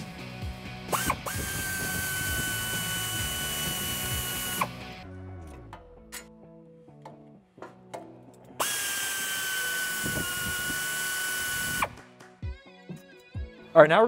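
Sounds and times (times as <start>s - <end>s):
air ratchet whining: 0.9s - 4.9s, 8.5s - 12.0s.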